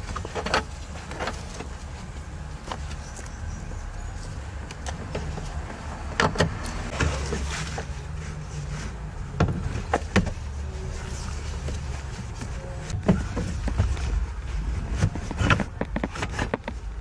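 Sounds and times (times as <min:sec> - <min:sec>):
low steady rumble: 0:00.0 - 0:17.0
fabric and carpet rustling: 0:06.9 - 0:17.0.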